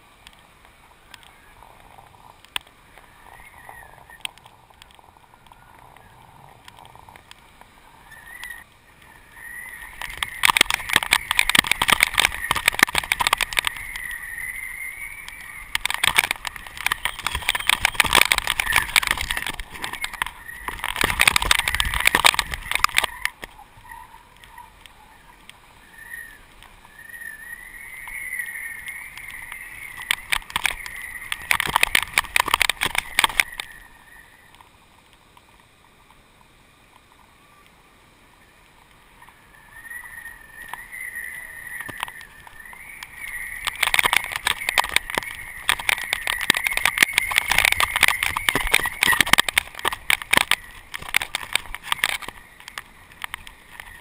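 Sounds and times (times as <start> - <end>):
wind whistling: 0.0 - 34.6, 38.4 - 54.0
fast fluttering rattle: 9.4 - 23.4, 43.1 - 54.0.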